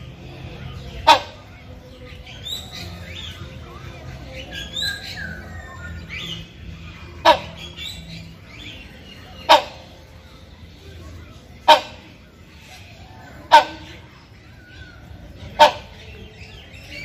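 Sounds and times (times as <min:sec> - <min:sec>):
hornbill harsh calls: 0:00.7 - 0:01.5, 0:07.1 - 0:10.1, 0:11.6 - 0:12.2, 0:13.4 - 0:14.0, 0:15.4 - 0:16.3.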